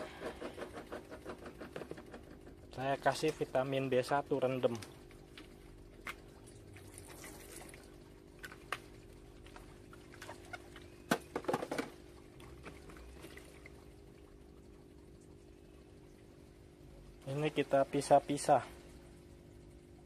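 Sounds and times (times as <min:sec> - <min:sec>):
faint steady hum: 0:00.0 - 0:20.0
plastic knocks and splashes: 0:00.1 - 0:03.4, 0:08.4 - 0:13.6
liquid pouring into water: 0:06.1 - 0:19.0.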